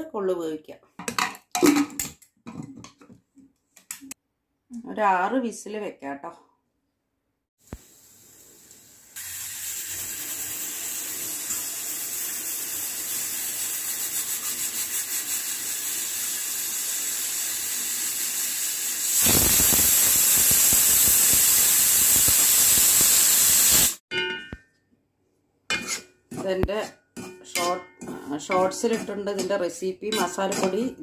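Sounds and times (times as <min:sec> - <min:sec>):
pressure cooker steam whistle: 0:09.2 - 0:24.0.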